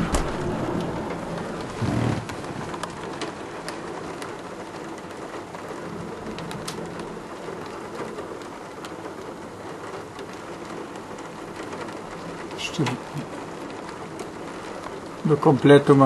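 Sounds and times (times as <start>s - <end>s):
heavy rain hissing: 0.0s - 16.0s
raindrops ticking on window glass: 0.0s - 16.0s.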